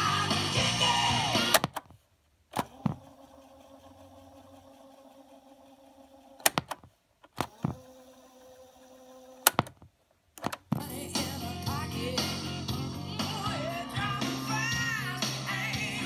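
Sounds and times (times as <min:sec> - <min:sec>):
cassette tape winding motor hum: 0:00.0 - 0:01.8, 0:02.6 - 0:06.7, 0:07.3 - 0:09.8
cassette buttons clunking: 0:10.4 - 0:10.9
music from speakers: 0:10.8 - 0:16.0.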